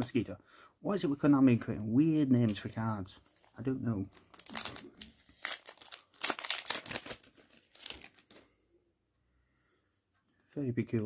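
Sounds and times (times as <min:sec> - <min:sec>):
foil wrapper crinkling and tearing: 0:03.4 - 0:08.4.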